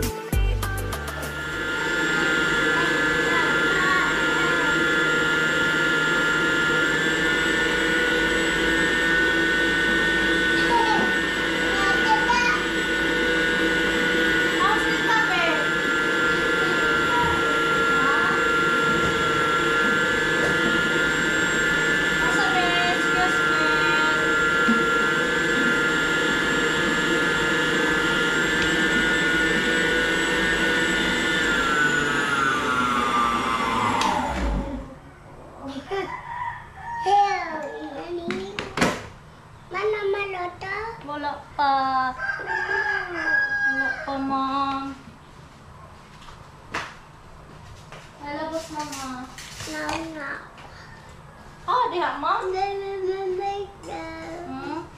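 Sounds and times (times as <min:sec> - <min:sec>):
stand mixer motor whining hum: 0:01.0 - 0:35.1.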